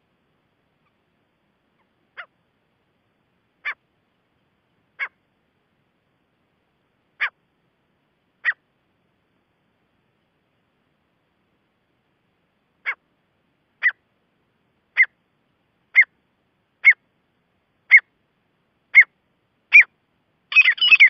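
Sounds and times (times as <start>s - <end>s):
francolin calling: 13.8s - 14.0s, 14.9s - 15.2s, 15.9s - 16.2s, 16.8s - 17.0s, 17.9s - 18.1s, 18.9s - 19.9s, 20.5s - 21.0s.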